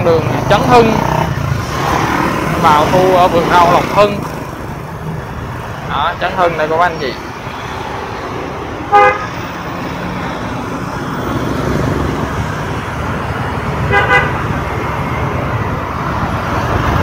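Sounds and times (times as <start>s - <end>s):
traffic drone: 0.0s - 17.0s
vehicle horn toots: 8.9s - 9.4s, 13.9s - 14.4s.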